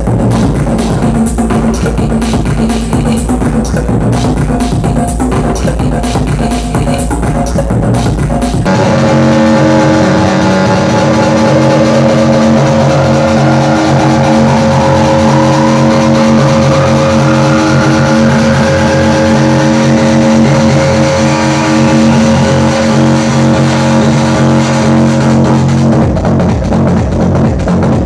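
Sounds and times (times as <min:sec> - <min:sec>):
rising synth sweep: 0:08.6 - 0:26.2
electronic droning chord: 0:08.6 - 0:26.8.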